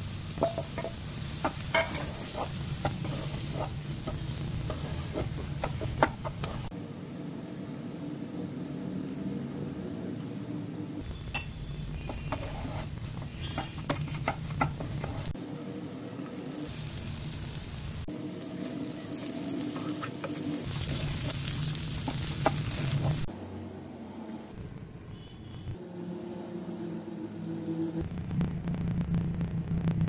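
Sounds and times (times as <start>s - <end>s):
potato sizzling in a frying pan: 0.0s - 6.7s, 11.0s - 23.3s
spatula scraping a pan: 0.4s - 6.7s, 11.4s - 15.4s
utensils clicking against pan: 0.4s - 6.7s.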